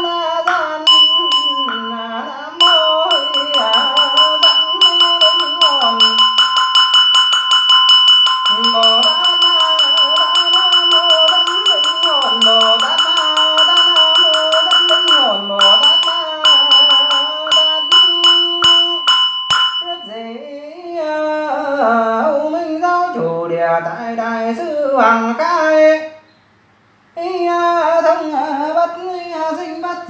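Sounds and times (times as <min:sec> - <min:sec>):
monk chanting: 0:00.0 - 0:06.6, 0:08.4 - 0:19.2, 0:19.8 - 0:26.2
bell ringing: 0:00.0 - 0:20.2
sharp percussive strikes: 0:00.0 - 0:20.2.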